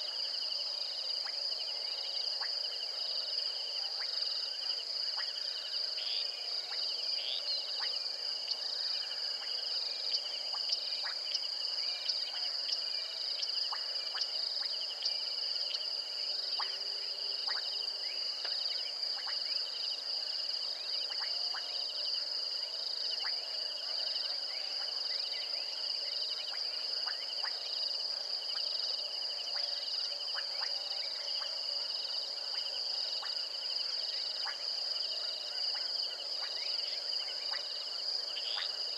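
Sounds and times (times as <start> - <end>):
lower insect trill: 0.0 - 38.9.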